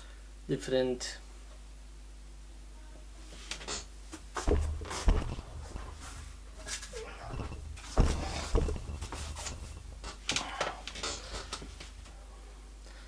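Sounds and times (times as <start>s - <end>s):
small knocks: 4.4s - 6.4s, 7.0s - 11.9s
thumps on wooden chair: 4.4s - 6.4s, 7.3s - 10.2s
rustling: 4.4s - 12.1s.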